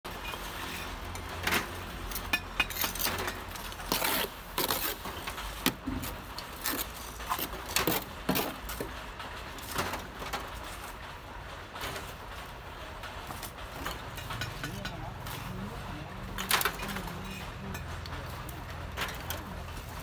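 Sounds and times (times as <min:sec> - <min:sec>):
trowel scraping mortar: 0:02.8 - 0:08.6.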